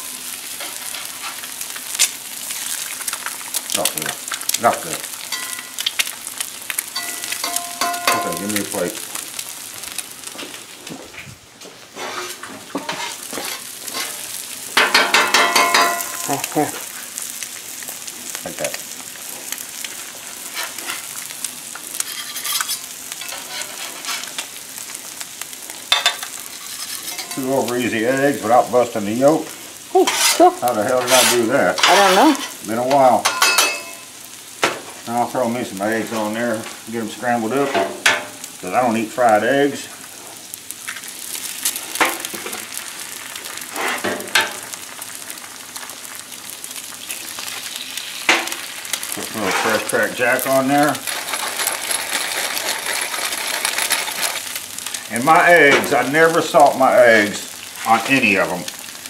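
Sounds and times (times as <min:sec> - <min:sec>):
food sizzling on a griddle: 0:00.0 - 0:59.0
metal spatula scraping griddle: 0:12.0 - 0:16.2, 0:20.4 - 0:21.2, 0:22.0 - 0:24.4, 0:25.9 - 0:27.5, 0:30.0 - 0:32.6, 0:43.6 - 0:44.6, 0:49.3 - 0:55.0.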